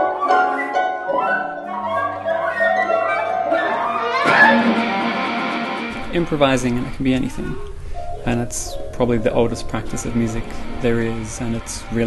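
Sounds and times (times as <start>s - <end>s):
bright noisy swell: 0.7s - 12.0s
held low tones: 5.6s - 12.0s.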